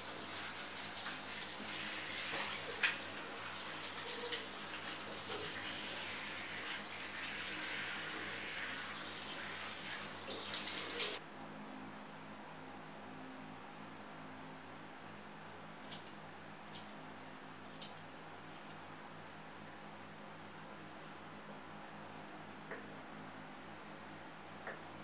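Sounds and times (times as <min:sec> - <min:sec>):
shower head spraying water: 0:00.0 - 0:11.2.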